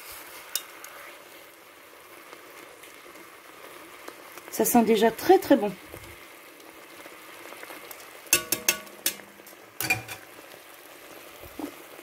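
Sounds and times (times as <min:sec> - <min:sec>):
sauce simmering with faint hiss: 0:00.0 - 0:12.0
metal tongs clinking on a pot: 0:00.5 - 0:00.7, 0:08.3 - 0:10.3.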